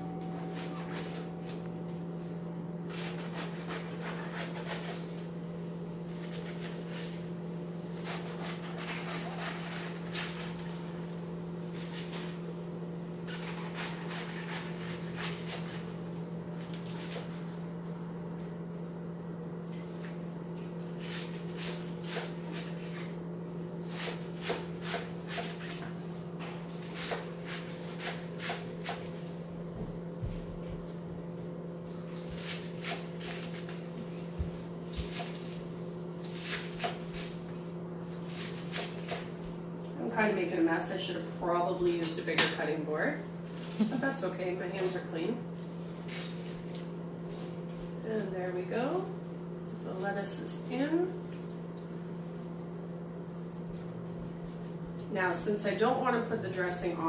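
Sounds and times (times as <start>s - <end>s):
low hum: 0.0s - 7.8s
knife crunching through lettuce: 2.9s - 5.3s, 6.0s - 11.0s, 11.7s - 12.4s, 13.2s - 18.6s, 19.6s - 29.4s, 30.3s - 39.5s, 43.4s - 44.2s, 45.5s - 48.3s.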